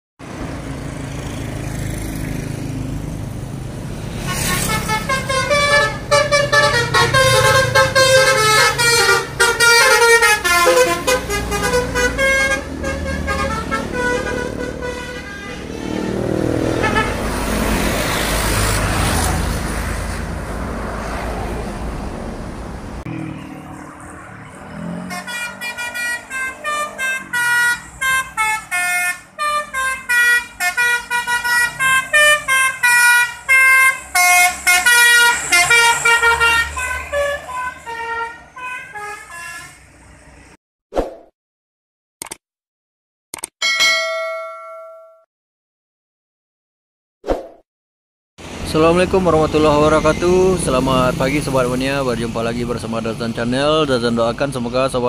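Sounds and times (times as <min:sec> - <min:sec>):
bus engine passing by: 0:00.2 - 0:29.6, 0:30.9 - 0:38.9, 0:48.4 - 0:54.6
multi-tone musical bus horns: 0:04.2 - 0:18.3, 0:24.7 - 0:40.5.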